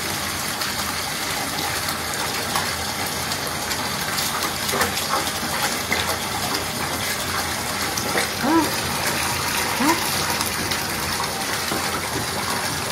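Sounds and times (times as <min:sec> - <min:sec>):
faucet pouring into filled bathtub: 0:00.0 - 0:12.9.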